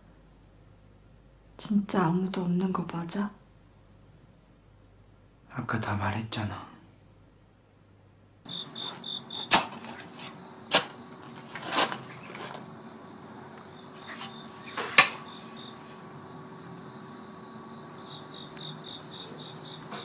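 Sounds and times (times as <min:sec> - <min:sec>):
crickets chirping: 0:08.4 - 0:20.0.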